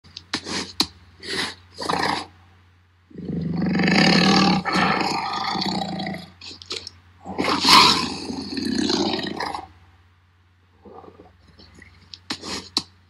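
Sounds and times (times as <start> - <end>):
tiger roaring: 3.1 - 6.4, 7.2 - 9.7.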